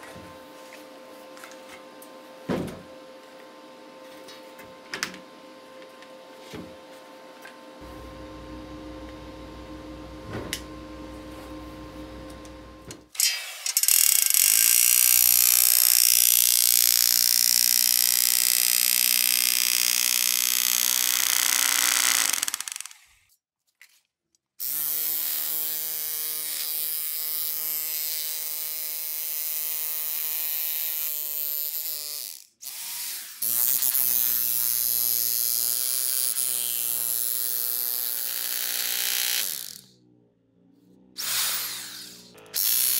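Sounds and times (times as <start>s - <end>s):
faint steady hum: 7.1s - 13.1s
electric jackhammer driving into turf: 13.2s - 23.1s, 31.6s - 39.9s, 41.2s - 42.9s.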